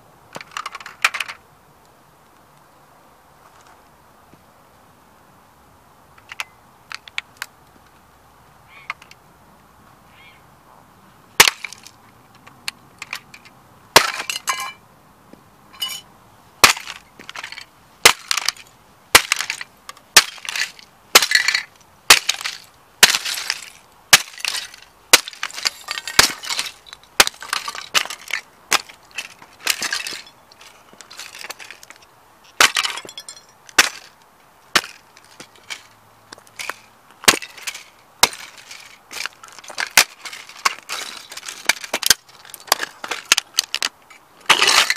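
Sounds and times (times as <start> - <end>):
plastic bits scattering on road: 0.3 - 1.4, 11.4 - 14.8, 16.6 - 44.9.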